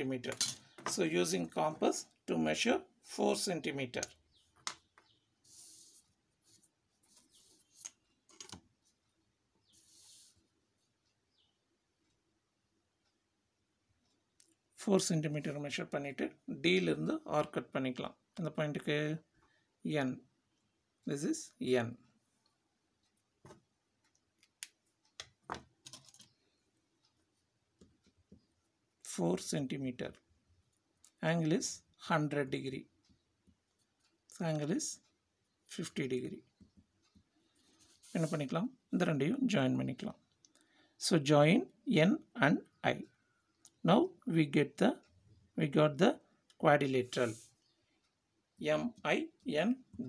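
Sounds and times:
ruler scraping on paper: 5.4s - 7.9s, 9.7s - 10.4s, 37.6s - 38.5s.

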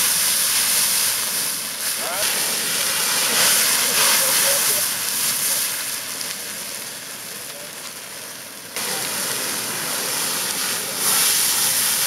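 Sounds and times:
fire extinguisher hissing: 0.0s - 6.2s, 8.8s - 12.0s
open flames rushing: 0.0s - 12.0s.

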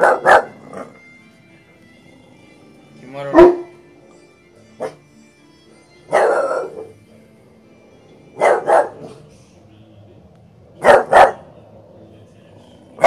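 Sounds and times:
puppy barking: 0.0s - 0.9s, 3.3s - 3.8s, 4.8s - 5.0s, 6.1s - 7.0s, 8.4s - 9.2s, 10.8s - 11.5s.

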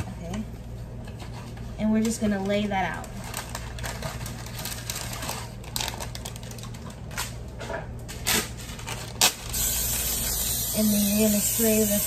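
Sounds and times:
parchment paper crinkling: 1.1s - 7.5s.

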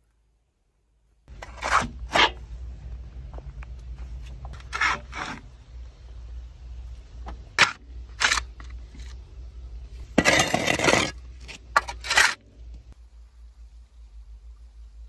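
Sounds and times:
shovel scraping wet clay on metal: 1.3s - 2.5s, 4.5s - 5.5s, 7.5s - 8.8s, 10.1s - 12.5s.

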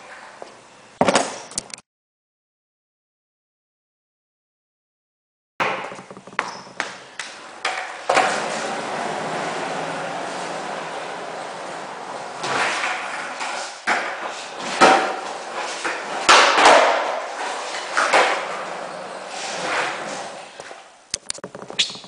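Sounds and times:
skateboard clacking on concrete: 5.7s - 9.4s, 10.0s - 22.0s
skateboard wheels rumbling: 6.0s - 20.9s.

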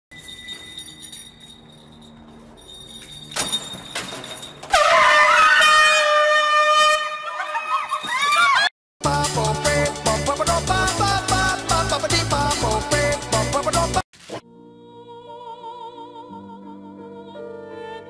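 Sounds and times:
loud high-pitched scream: 4.7s - 8.7s.

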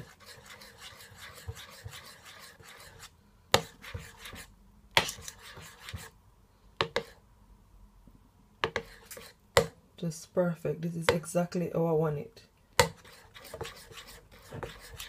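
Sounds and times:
spoon stirring batter in bowl: 0.0s - 6.2s, 6.8s - 7.2s, 8.6s - 9.8s, 12.8s - 15.0s.

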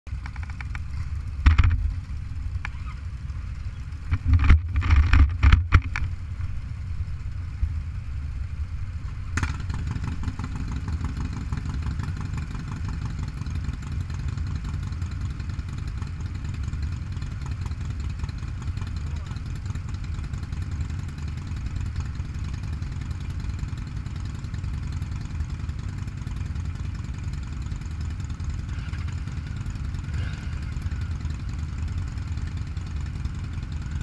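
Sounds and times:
motorcycle engines idling: 0.1s - 34.0s
knocks and rustling: 4.1s - 6.2s.

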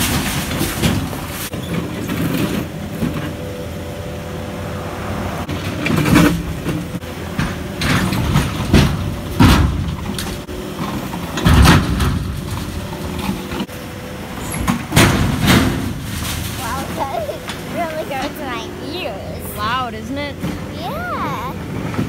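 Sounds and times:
diesel engine running: 0.0s - 22.0s
concrete and steel crashing: 14.8s - 17.1s.

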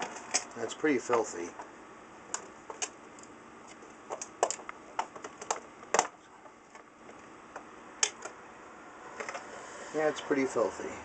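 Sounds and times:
plastic clicks and knocks: 4.1s - 6.9s.

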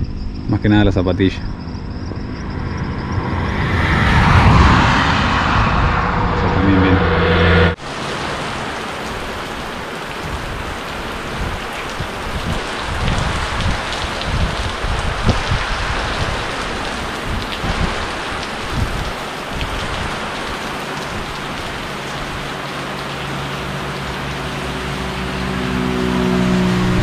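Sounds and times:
low rumble: 0.0s - 7.8s
rain falling: 7.8s - 27.0s.

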